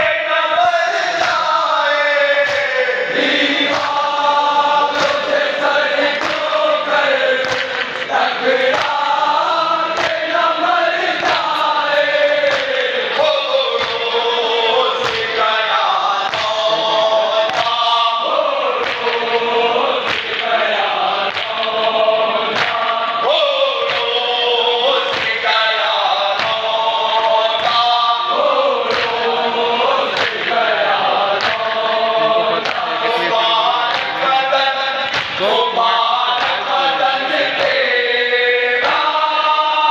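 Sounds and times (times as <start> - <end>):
men chanting in unison: 0.0 - 39.9
hands slapping chests: 2.4 - 4.0, 4.9 - 6.6, 7.2 - 9.1, 9.9 - 11.7, 12.4 - 12.9, 13.8 - 14.0, 15.0 - 15.4, 16.2 - 16.7, 17.4 - 17.8, 18.8 - 19.3, 19.9 - 23.2, 23.8 - 24.2, 25.0 - 25.5, 26.3 - 26.7, 28.8 - 29.3, 30.0 - 30.7, 31.4 - 31.7, 32.6 - 32.9, 33.8 - 34.4, 35.0 - 35.6.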